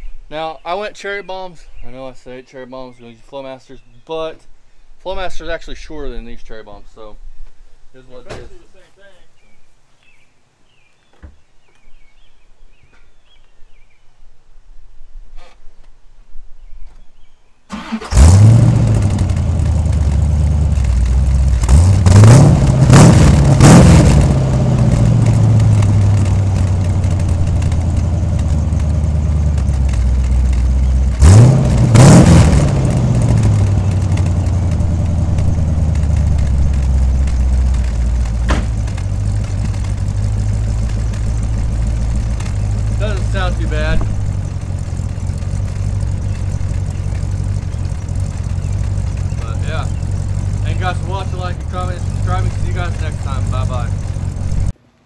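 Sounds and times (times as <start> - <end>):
car engine starting and revving: 17.7 - 54.7.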